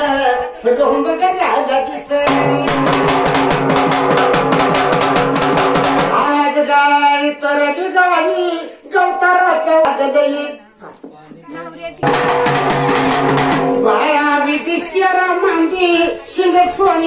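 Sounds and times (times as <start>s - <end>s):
drum beaten fast with sticks: 2.2s - 6.4s, 12.0s - 14.7s.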